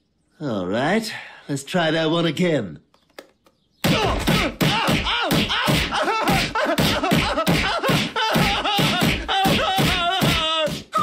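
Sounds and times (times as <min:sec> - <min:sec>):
cartoon punches and slaps: 0:03.8 - 0:11.0
pained yelps and grunts: 0:03.9 - 0:11.0.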